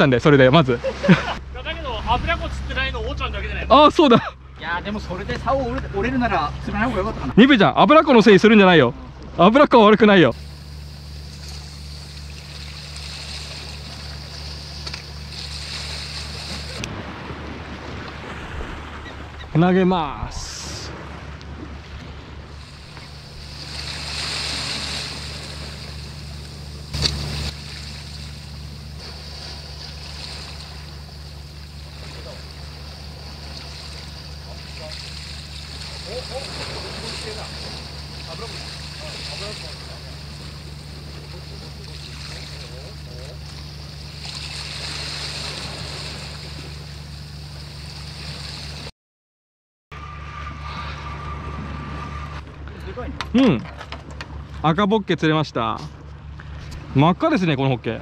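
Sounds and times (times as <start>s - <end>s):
steady low hum: 0.0s - 48.9s
wind: 0.0s - 48.9s, 49.9s - 58.0s
sea waves on rocks: 10.3s - 48.9s.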